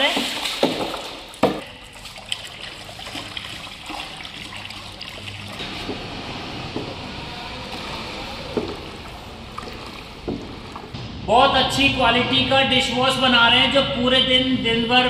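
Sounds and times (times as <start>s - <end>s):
liquid splashing into drum: 0.0s - 7.1s, 7.7s - 11.3s
sharp knock: 10.9s - 12.6s.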